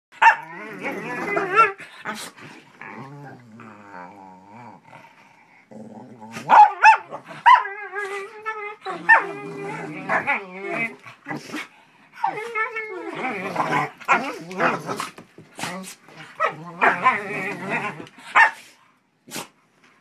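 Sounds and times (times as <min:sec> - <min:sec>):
dog yowling and barking: 0:00.2 - 0:01.8, 0:06.5 - 0:10.9, 0:12.2 - 0:14.7, 0:16.4 - 0:18.6
dog growling: 0:00.4 - 0:18.2.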